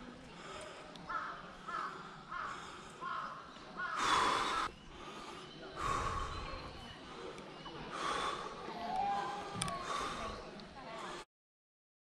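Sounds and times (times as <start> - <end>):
crow cawing: 1.1 - 4.7.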